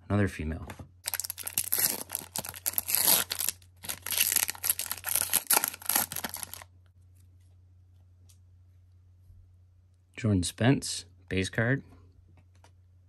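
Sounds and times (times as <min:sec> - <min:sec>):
low steady hum: 0:00.0 - 0:13.0
foil wrapper crinkling and tearing: 0:01.0 - 0:06.7.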